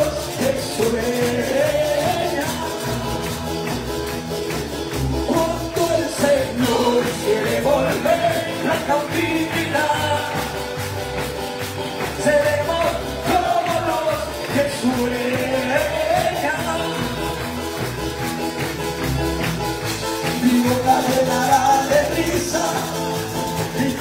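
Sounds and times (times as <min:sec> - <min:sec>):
person singing: 0:00.0 - 0:04.1, 0:05.1 - 0:11.0, 0:11.9 - 0:17.9, 0:20.1 - 0:24.0
band playing worship song: 0:00.0 - 0:24.0
congregation clapping: 0:00.0 - 0:24.0.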